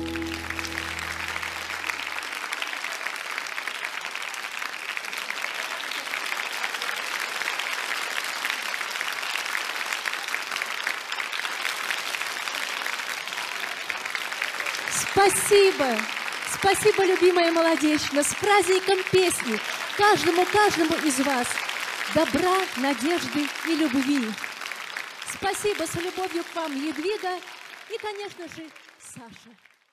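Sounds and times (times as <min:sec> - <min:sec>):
band holding low note: 0:00.0 - 0:02.2
audience applauding: 0:00.0 - 0:29.9.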